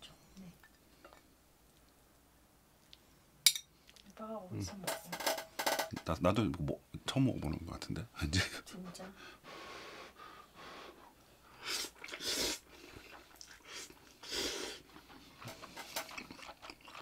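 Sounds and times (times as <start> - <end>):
person slurping noodles: 11.6 - 17.0.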